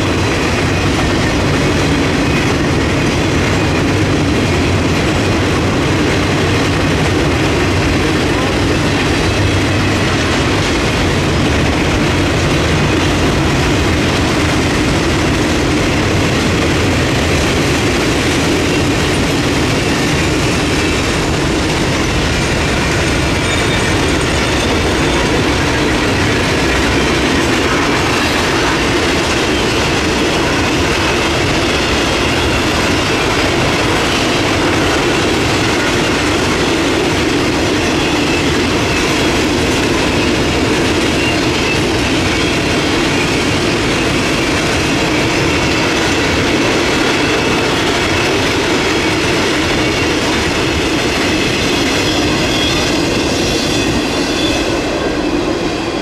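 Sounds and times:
train wheels clattering over rails: 0:00.0 - 0:56.0
high wheel squeal: 0:23.0 - 0:28.7, 0:49.3 - 0:55.0.

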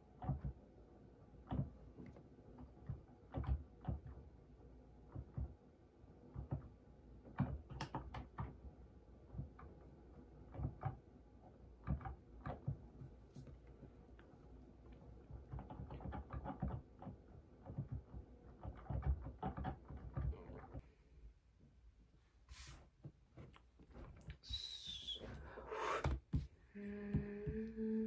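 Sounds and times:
typing on computer keyboard: 0:15.3 - 0:20.8.

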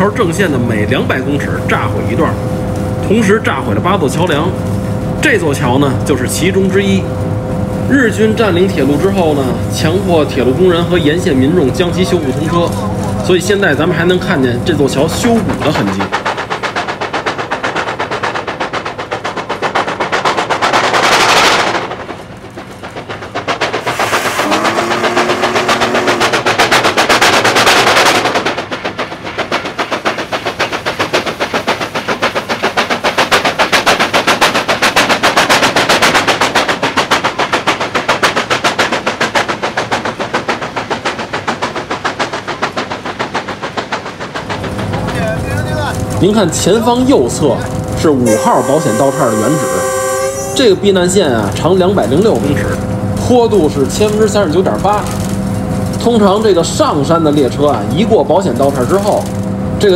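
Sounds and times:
steam hissing: 0:00.0 - 0:59.9
steam locomotive exhaust beats: 0:00.0 - 0:59.9
low train whistle: 0:24.3 - 0:26.6, 0:48.2 - 0:50.7.

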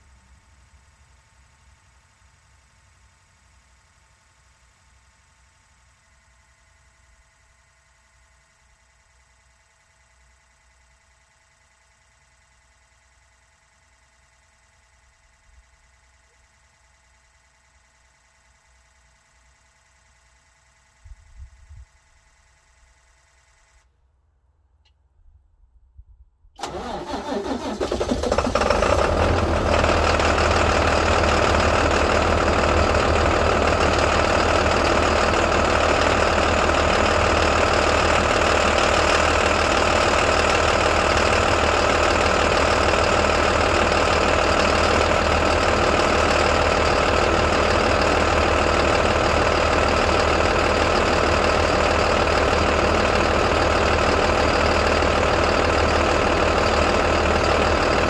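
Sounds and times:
diesel engine starting and idling: 0:26.6 - 0:58.0.

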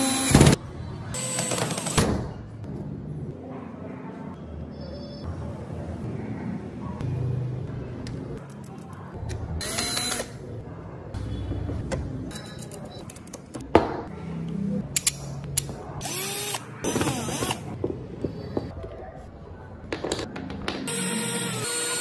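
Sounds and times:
power drill running: 0:20.9 - 0:22.0.

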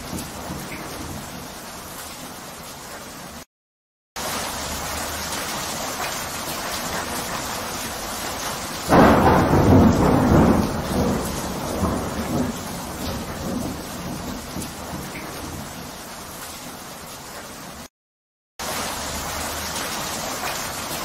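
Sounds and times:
thunder clap and rumble: 0:00.0 - 0:01.5, 0:08.8 - 0:15.9
steady rain: 0:00.0 - 0:03.5, 0:04.2 - 0:17.9, 0:18.6 - 0:21.0.

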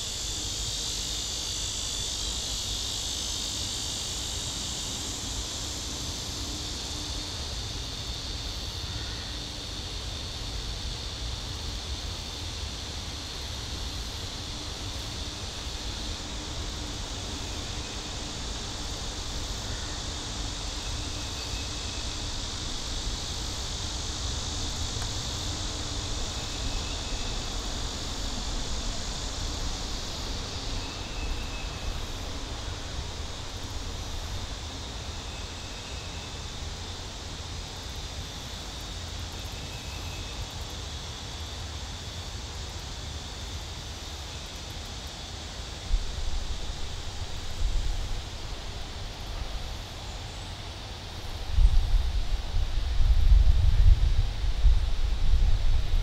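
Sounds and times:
insects buzzing: 0:00.0 - 0:56.0
wind rumble on microphone: 0:51.1 - 0:56.0.

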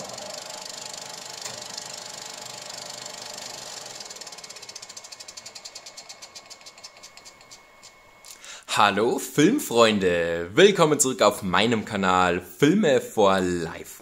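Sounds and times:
rapid mechanical clicking: 0:00.0 - 0:08.4.

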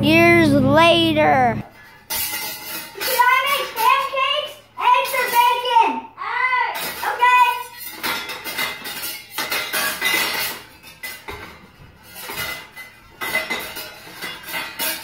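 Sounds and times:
pans and utensils clattering: 0:01.8 - 0:04.1, 0:05.0 - 0:05.7, 0:06.8 - 0:15.0.

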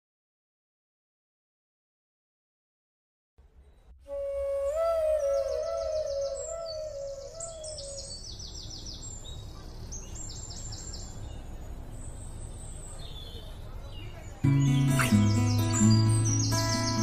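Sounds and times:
birds chirping in trills: 0:03.8 - 0:17.0.

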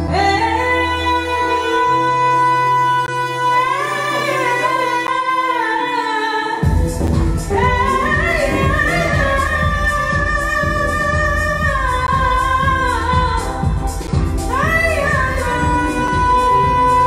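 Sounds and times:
woman singing: 0:00.0 - 0:17.0
drum beat: 0:06.6 - 0:17.0.

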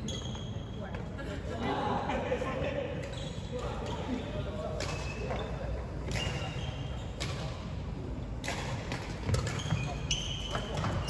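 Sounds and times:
rackets striking shuttlecock: 0:06.0 - 0:07.7, 0:08.4 - 0:11.0.

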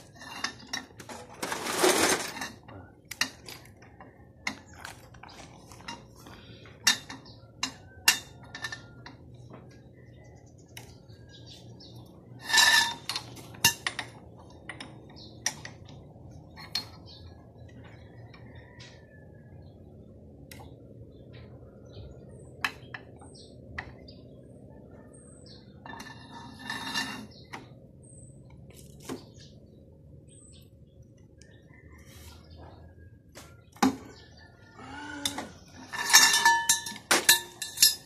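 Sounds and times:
steel tools clanking on engine: 0:00.0 - 0:09.8, 0:11.4 - 0:17.3, 0:25.4 - 0:27.7, 0:35.2 - 0:38.0
ringing metallic clatter: 0:35.2 - 0:38.0.

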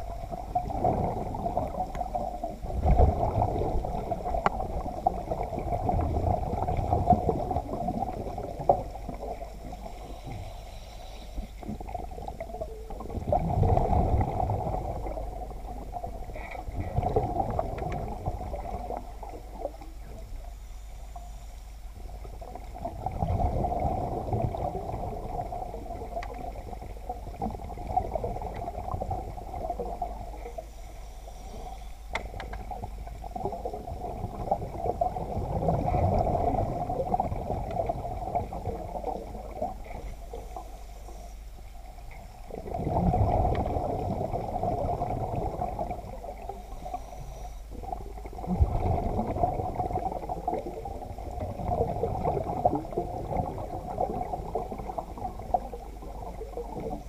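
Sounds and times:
regulator exhaust bubbles gurgling: 0:00.0 - 0:09.9, 0:22.3 - 0:30.4, 0:42.5 - 0:46.6, 0:47.7 - 0:57.0
muffled underwater hum: 0:00.0 - 0:57.0.

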